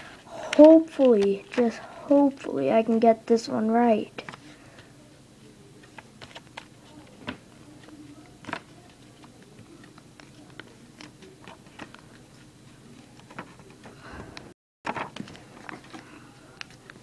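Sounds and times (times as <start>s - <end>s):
paper rustling while folded: 14.9s - 17.0s.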